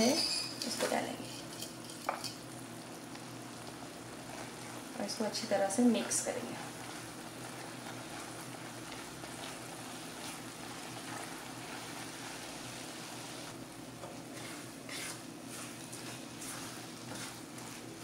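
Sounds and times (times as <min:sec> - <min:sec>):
syrup bubbling and sizzling in pan: 0:01.4 - 0:18.0
spatula scraping pan: 0:06.8 - 0:12.6, 0:14.0 - 0:18.0.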